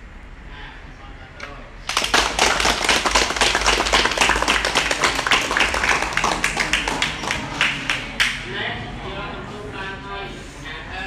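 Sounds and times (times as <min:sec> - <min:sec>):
children clapping: 0:01.9 - 0:08.4.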